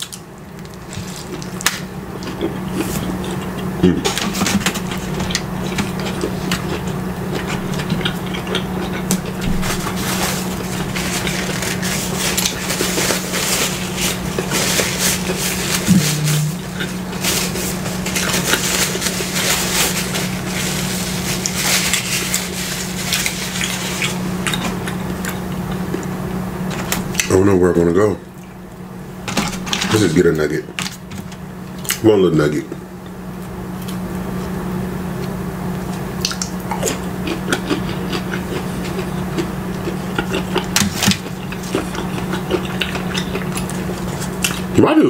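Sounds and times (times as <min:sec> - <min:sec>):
chewing and crunching burger: 0:00.0 - 0:27.4, 0:32.7 - 0:44.8
air conditioning hum: 0:00.0 - 0:45.0.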